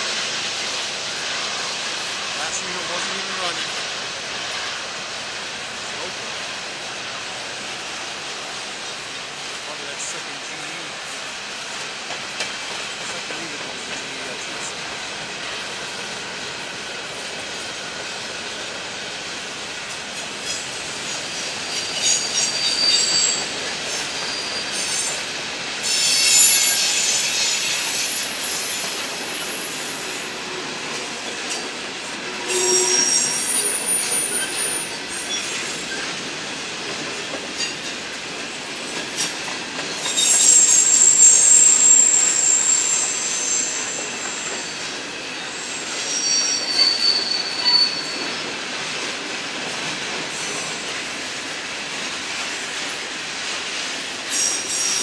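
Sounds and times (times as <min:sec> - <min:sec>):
railcars rolling past: 0:00.0 - 0:55.0
high-pitched wheel squeal: 0:21.7 - 0:23.5, 0:25.9 - 0:29.6, 0:32.4 - 0:35.7, 0:40.1 - 0:44.9, 0:45.5 - 0:48.4.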